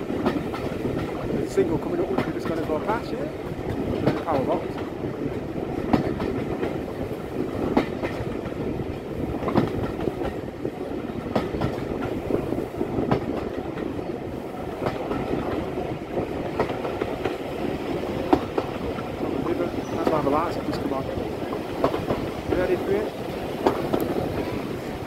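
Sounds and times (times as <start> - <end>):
train wheels rumbling on track: 0.0 - 25.0
wheels clicking over rail joints: 0.0 - 25.0.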